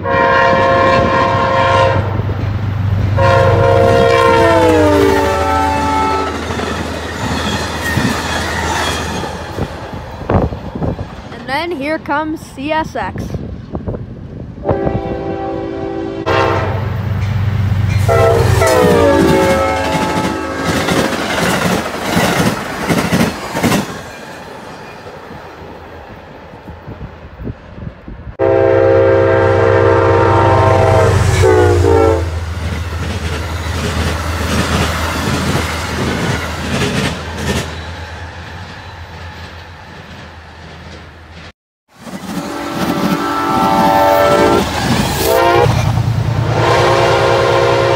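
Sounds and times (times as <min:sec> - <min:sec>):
locomotive horn: 0:00.0 - 0:02.2, 0:03.2 - 0:06.5, 0:14.6 - 0:17.1, 0:18.0 - 0:21.2, 0:28.4 - 0:32.4, 0:42.4 - 0:47.9.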